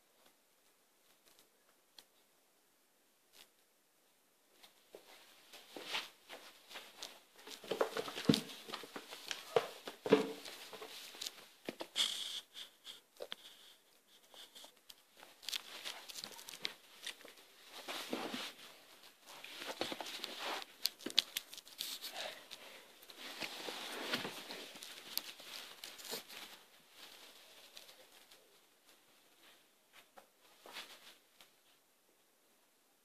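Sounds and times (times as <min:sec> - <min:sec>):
rustling on carpet: 0:04.5 - 0:12.3, 0:14.1 - 0:31.8
puppy chewing: 0:14.3 - 0:17.4.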